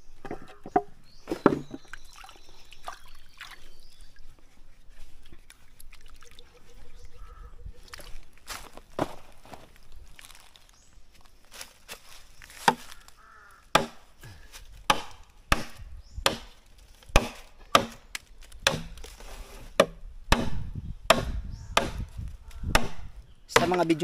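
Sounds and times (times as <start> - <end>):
machete chopping bamboo: 12.6 - 13.0, 13.7 - 14.1, 14.8 - 19.2, 19.8 - 22.1, 22.7 - 23.9.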